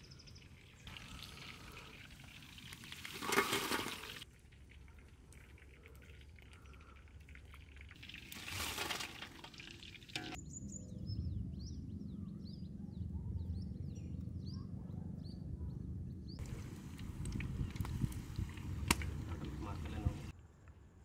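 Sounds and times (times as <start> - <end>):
fish deep-frying in oil: 0.9 - 6.5, 7.2 - 10.4.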